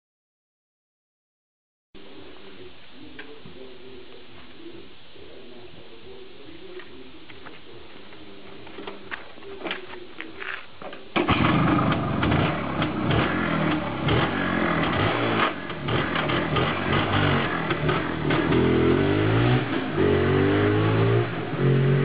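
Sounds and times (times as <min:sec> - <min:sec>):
motorcycle kick-start: 0:11.1 - 0:18.6
motorcycle engine running unevenly: 0:11.2 - 0:22.0.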